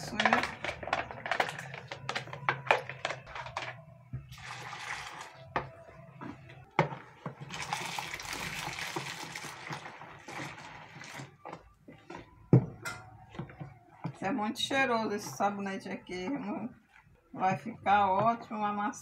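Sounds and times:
water pouring and splashing: 4.3s - 5.7s, 6.8s - 12.3s
spatula stirring: 4.3s - 19.0s.

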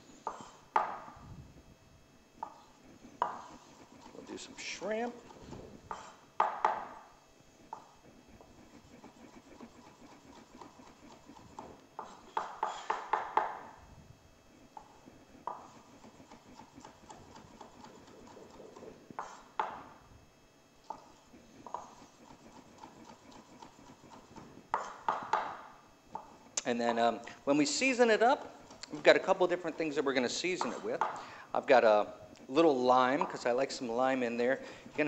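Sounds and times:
knife chopping on wooden board: 0.3s - 1.1s, 3.2s - 4.1s, 5.2s - 7.0s, 9.2s - 13.7s, 15.4s - 19.9s, 20.9s - 26.3s.

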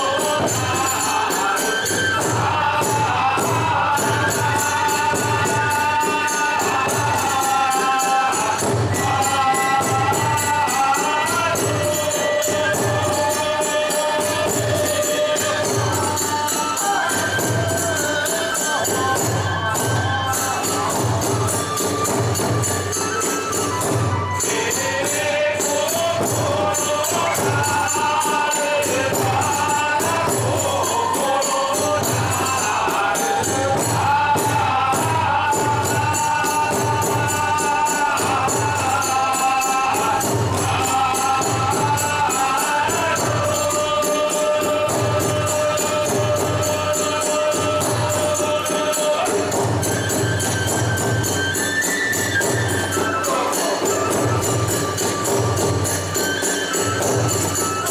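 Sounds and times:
drum beating steady rhythm: 0.0s - 57.9s
small hand cymbals clashing: 0.0s - 57.9s.

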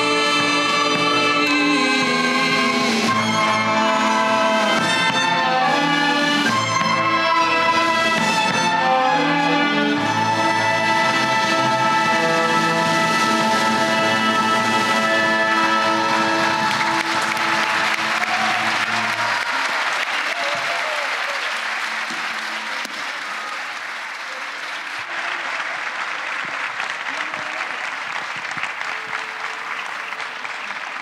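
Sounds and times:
audience applauding: 11.0s - 31.0s.

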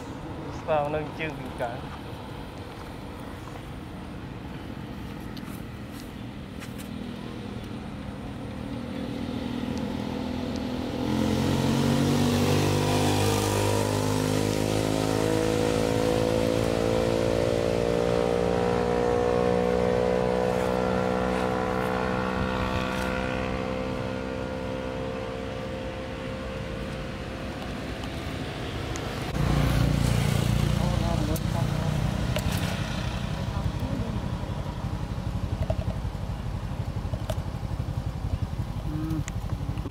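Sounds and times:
motorbike engine running: 29.4s - 39.9s.

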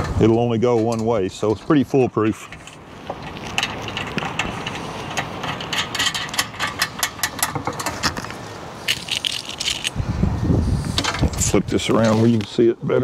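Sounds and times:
metallic clicks of bolts and nuts: 2.5s - 8.2s.

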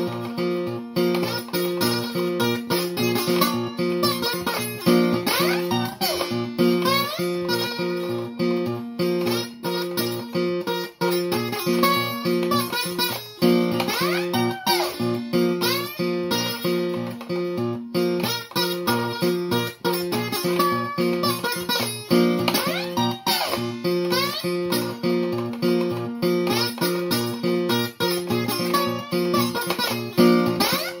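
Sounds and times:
slide guitar blues: 0.0s - 31.0s.

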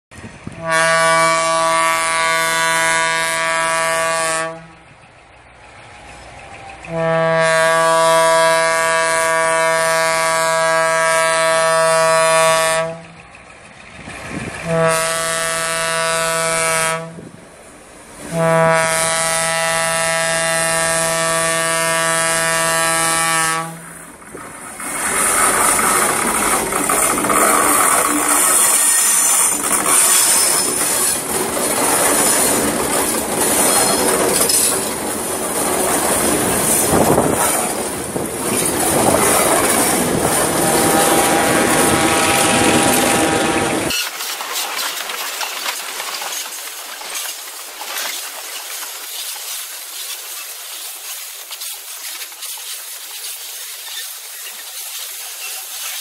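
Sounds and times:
train wheels on rails: 0.1s - 56.0s
locomotive engine: 0.2s - 49.0s
locomotive air horn blasts: 0.6s - 4.9s, 6.9s - 13.2s, 14.6s - 17.4s, 18.2s - 23.9s, 39.0s - 43.9s.

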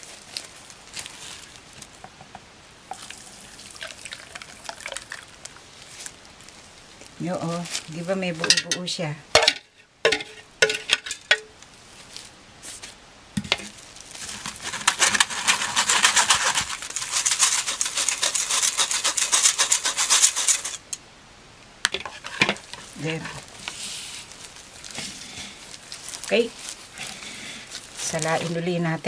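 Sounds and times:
whisk scraping metal strainer: 14.6s - 21.0s.

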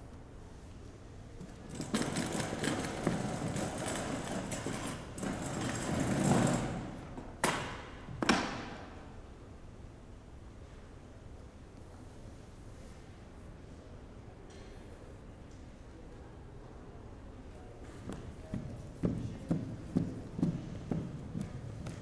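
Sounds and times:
metal chair scraping on floor: 1.7s - 7.0s.

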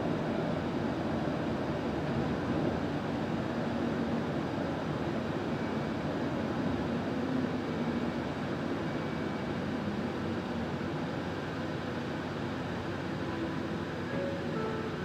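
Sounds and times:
bus engine and road noise: 0.0s - 15.0s.

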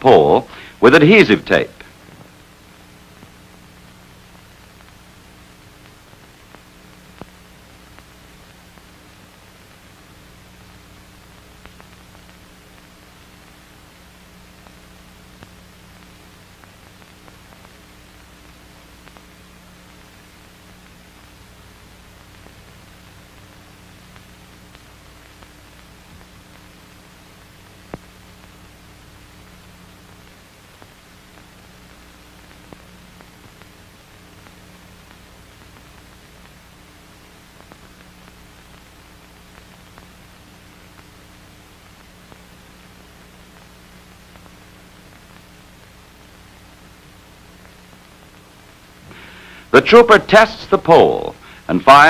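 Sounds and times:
film soundtrack hiss and hum: 0.0s - 52.0s
clicks and crackles: 1.8s - 50.5s
faint clicks: 11.4s - 12.9s, 29.4s - 49.7s.

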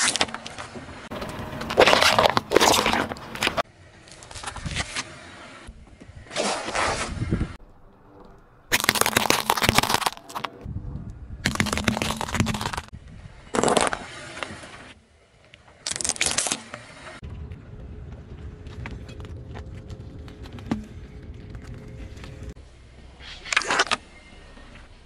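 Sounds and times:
tyre crushing toys crunching: 1.1s - 3.6s, 8.7s - 10.6s, 11.4s - 12.9s.

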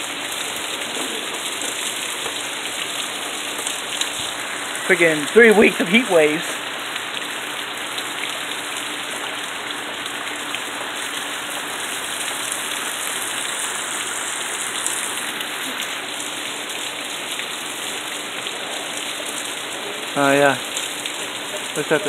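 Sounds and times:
heavy rain hissing: 0.0s - 22.0s.

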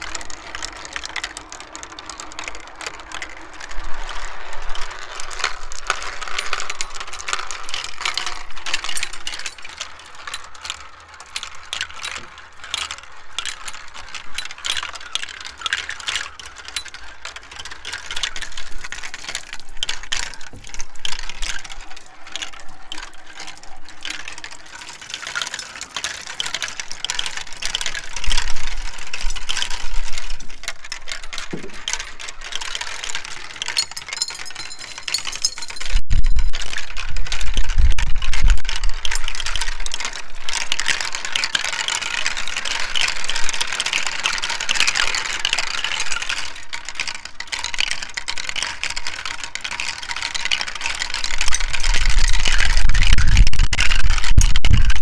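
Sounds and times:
marbles clicking through plastic track: 0.0s - 55.0s
wind rumble on microphone: 35.4s - 39.9s, 51.3s - 55.0s.

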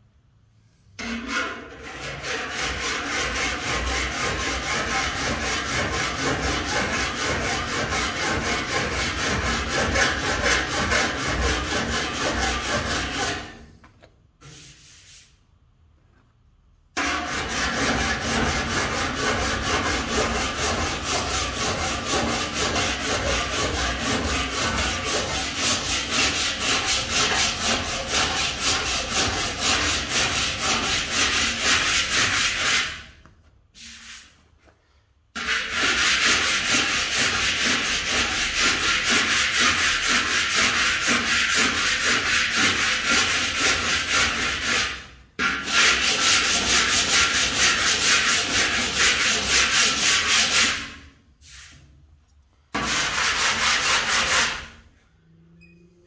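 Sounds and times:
file rasping on steel: 1.0s - 13.7s, 17.0s - 33.1s, 35.4s - 51.1s, 52.7s - 54.9s.

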